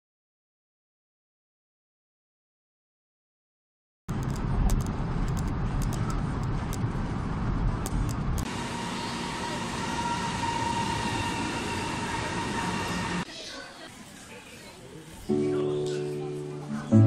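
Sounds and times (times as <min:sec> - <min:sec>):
train rumble: 0:04.1 - 0:13.3
standing train hum: 0:04.1 - 0:14.6.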